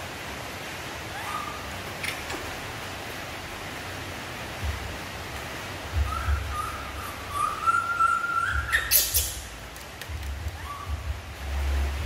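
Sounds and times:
rain hissing: 0:00.0 - 0:12.0
thin whistle-like call: 0:06.0 - 0:09.5, 0:10.6 - 0:11.0.

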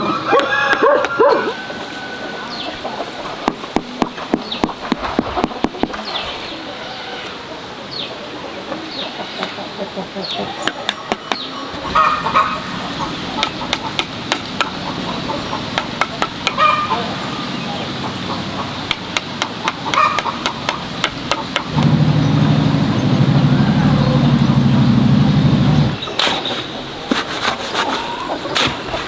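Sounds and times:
chickens clucking: 0:00.0 - 0:25.0, 0:25.8 - 0:29.0
loud low drone: 0:21.6 - 0:26.0
trowel scraping on mortar: 0:26.2 - 0:29.0.

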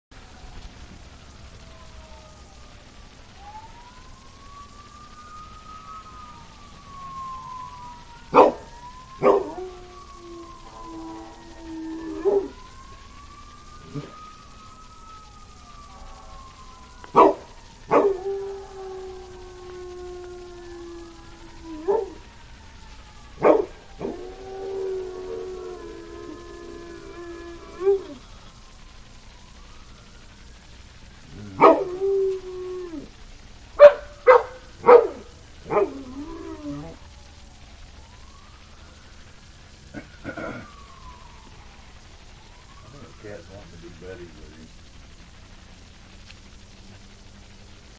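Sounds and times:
fire truck siren wailing: 0:00.1 - 0:47.9
dog howling: 0:08.2 - 0:12.7, 0:13.8 - 0:14.2, 0:15.8 - 0:22.3, 0:23.3 - 0:28.3, 0:31.2 - 0:33.2, 0:33.8 - 0:37.1
dog barking: 0:08.3 - 0:09.5, 0:17.2 - 0:18.1, 0:23.4 - 0:23.8, 0:31.6 - 0:31.8, 0:33.8 - 0:35.9.

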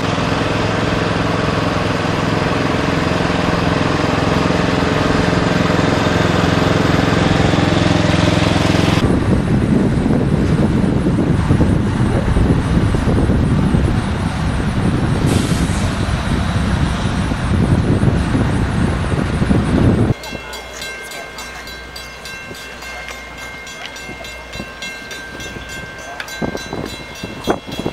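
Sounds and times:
wind buffeting microphone: 0:08.2 - 0:20.5, 0:21.6 - 0:27.9
steady high tones: 0:20.2 - 0:27.9.

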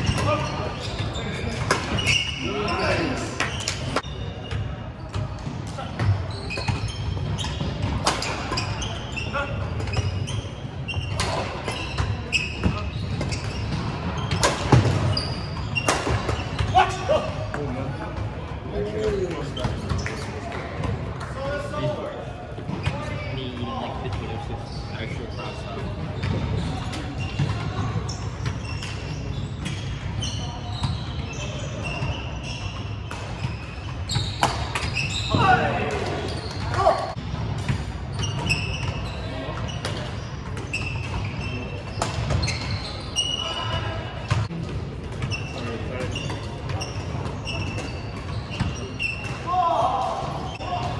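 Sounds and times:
shoes squeaking on hardwood floor: 0:00.0 - 0:16.8, 0:24.7 - 0:37.2, 0:38.1 - 0:44.6, 0:45.2 - 0:50.8.

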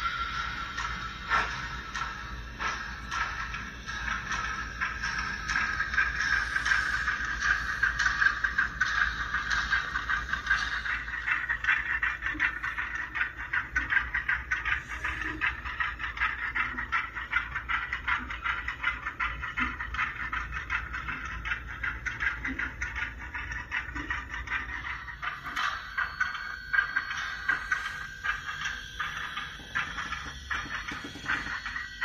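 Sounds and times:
model steam locomotive chatter: 0:00.0 - 0:32.0.

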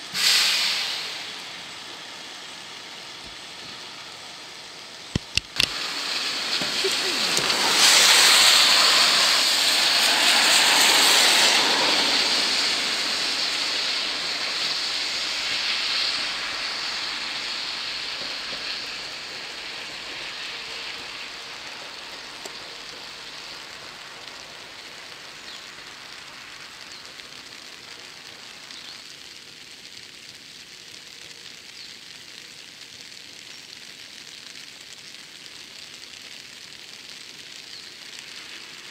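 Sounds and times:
rain hissing: 0:00.0 - 0:38.9
sharp clicks: 0:05.1 - 0:05.8
electric train passing: 0:05.6 - 0:25.2.

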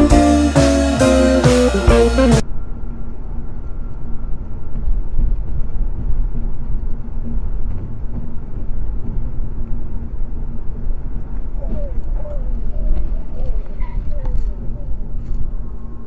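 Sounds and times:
car road and engine rumble: 0:00.0 - 0:16.0.

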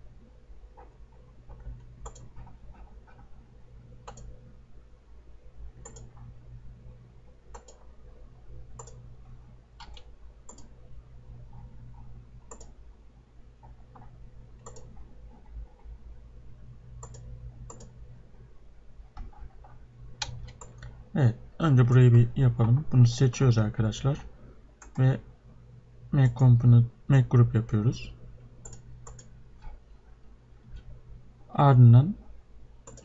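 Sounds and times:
low steady hum: 0:00.0 - 0:33.0
computer mouse clicking: 0:00.8 - 0:03.3, 0:04.0 - 0:04.4, 0:05.8 - 0:06.3, 0:07.5 - 0:07.9, 0:08.7 - 0:09.0, 0:09.8 - 0:10.8, 0:11.5 - 0:12.8, 0:13.6 - 0:15.5, 0:17.0 - 0:18.0, 0:19.1 - 0:21.0, 0:24.8 - 0:25.1, 0:28.6 - 0:29.8.

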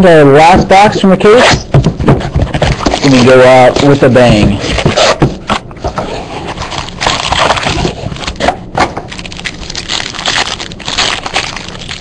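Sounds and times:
packaging crinkling and tearing: 0:02.6 - 0:05.2, 0:06.4 - 0:12.0.

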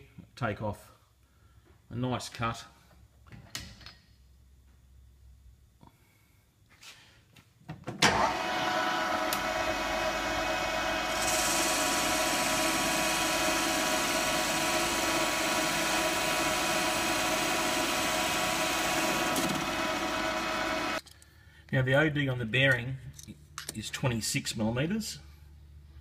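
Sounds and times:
lathe motor and gears humming: 0:08.1 - 0:21.0
cutting tool hiss: 0:11.0 - 0:21.0.

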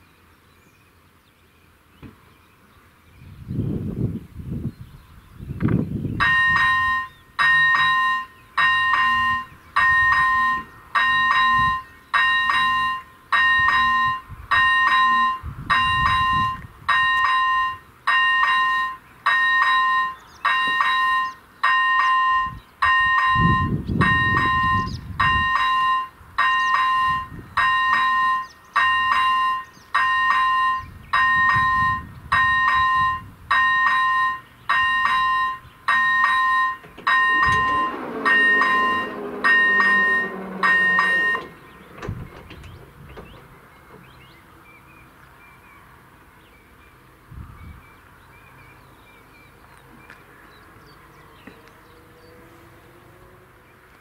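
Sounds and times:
level crossing bell ringing: 0:06.2 - 0:42.1
low rumbles: 0:34.6 - 0:45.2.

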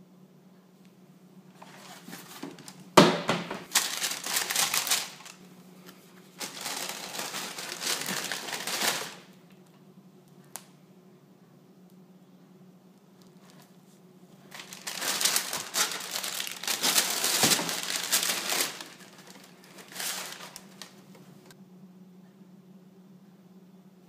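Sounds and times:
tissue paper crinkling: 0:01.6 - 0:02.8, 0:03.6 - 0:09.3, 0:14.5 - 0:21.6.

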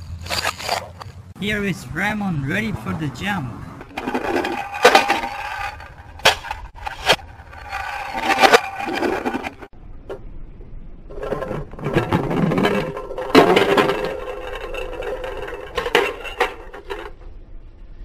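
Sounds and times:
toy car rolling and scraping: 0:00.0 - 0:01.2, 0:03.8 - 0:09.7, 0:11.1 - 0:17.3.

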